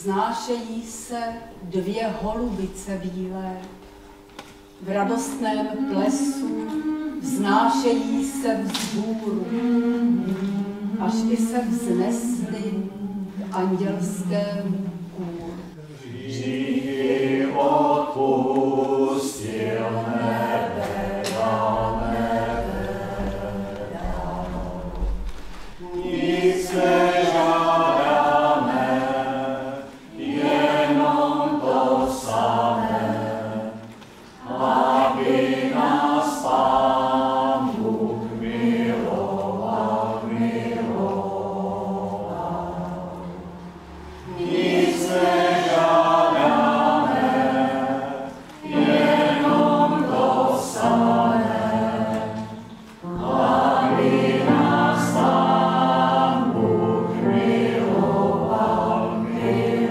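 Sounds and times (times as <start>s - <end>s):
mixed choir singing: 4.8s - 59.9s.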